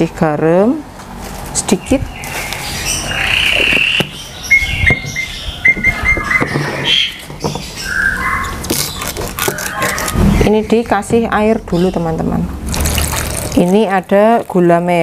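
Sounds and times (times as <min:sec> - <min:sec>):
bird chirping: 0:01.6 - 0:12.4.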